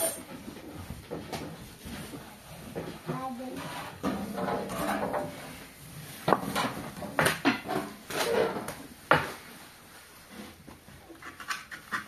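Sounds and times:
objects knocking and clattering: 0.0 - 9.5.

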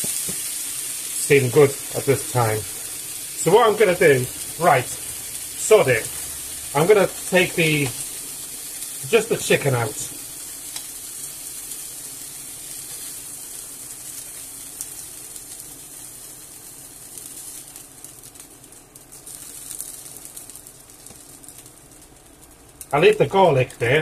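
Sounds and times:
chicken sizzling in a frying pan: 0.0 - 24.0.

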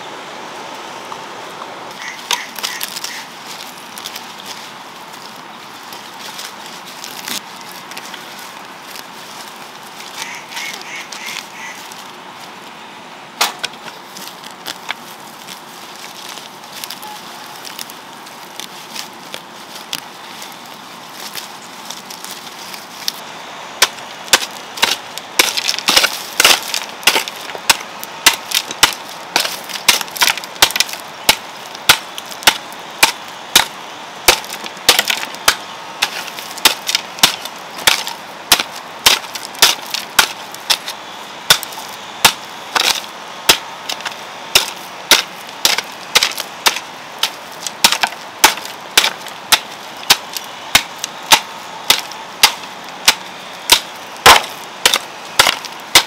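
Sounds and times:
hoe chopping into stony soil: 23.8 - 56.0.

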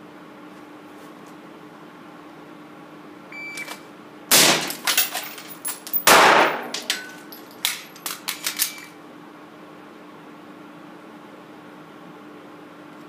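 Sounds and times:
pistol gunshot: 4.3 - 4.8, 6.0 - 6.7
rifle gunshot: 4.3 - 4.8, 6.0 - 6.7
metallic clicks of weapon handling: 4.7 - 9.0.

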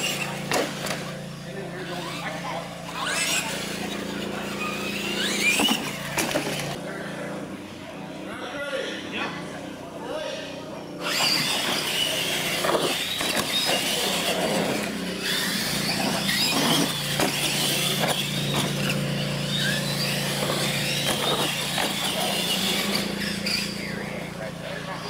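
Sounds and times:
toy trucks knocking and clattering: 0.0 - 1.2, 4.9 - 6.8, 11.0 - 19.0, 19.6 - 23.7
electric motors whining: 0.0 - 25.0.

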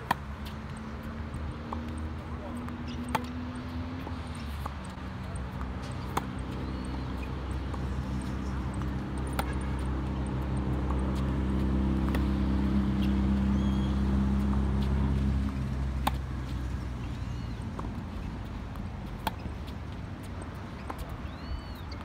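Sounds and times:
tennis ball struck by rackets: 0.0 - 1.0, 2.7 - 18.0, 19.0 - 19.6.

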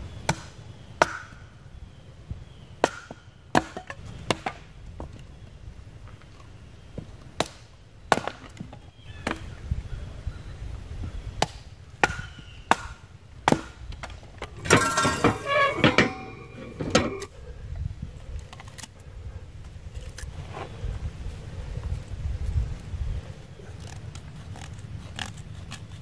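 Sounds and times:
metal tool clanking on steel ring: 14.5 - 17.3.

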